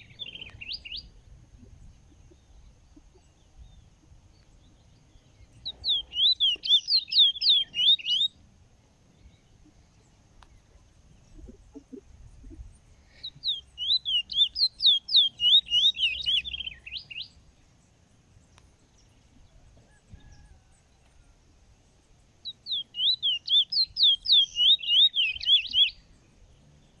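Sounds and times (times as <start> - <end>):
finch singing whistled trills: 0.0 - 1.1, 5.6 - 8.4, 13.1 - 17.4, 22.4 - 26.1.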